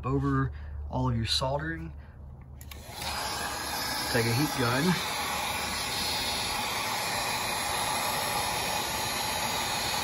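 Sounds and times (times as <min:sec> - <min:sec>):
heat gun blowing hot air: 0:02.6 - 0:10.0.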